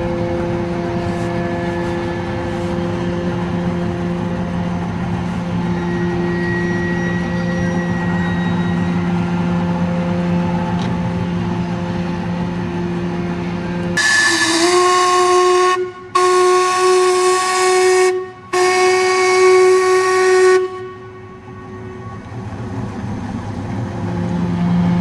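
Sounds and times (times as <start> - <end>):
low mechanical hum: 0.0 - 25.0
steam whistle blasts: 5.3 - 10.0, 14.0 - 22.3.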